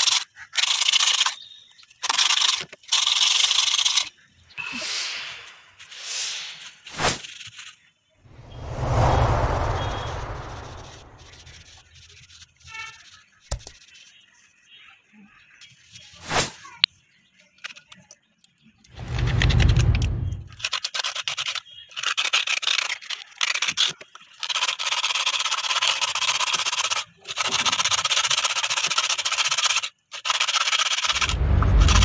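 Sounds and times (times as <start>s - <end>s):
sandpaper rasping on coconut shell: 0.0s - 1.4s, 2.0s - 4.1s, 11.6s - 14.3s, 20.6s - 31.3s
dull low rumble: 8.3s - 11.6s, 19.0s - 20.6s, 31.2s - 32.0s.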